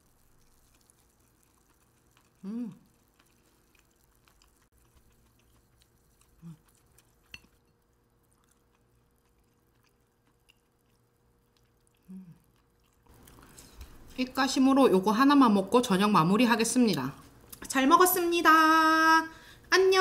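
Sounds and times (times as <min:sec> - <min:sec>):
person chewing fish: 0:00.0 - 0:14.1.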